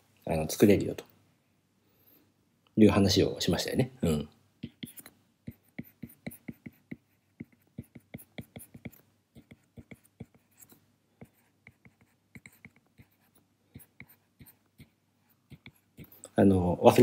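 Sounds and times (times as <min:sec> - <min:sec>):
stylus tapping on tablet screen: 0:04.6 - 0:10.4.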